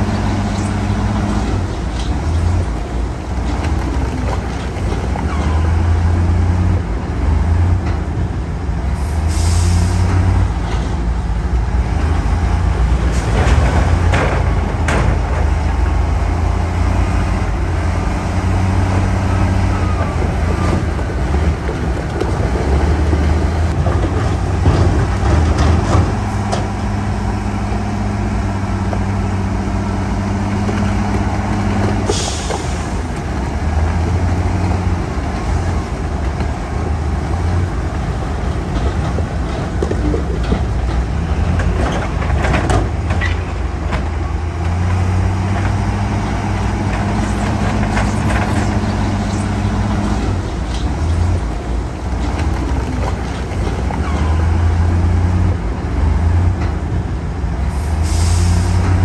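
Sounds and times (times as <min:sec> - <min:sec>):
heavy diesel engines droning: 0:00.0 - 0:59.0
air brake hiss: 0:09.0 - 0:10.1, 0:32.1 - 0:33.0, 0:57.8 - 0:58.9.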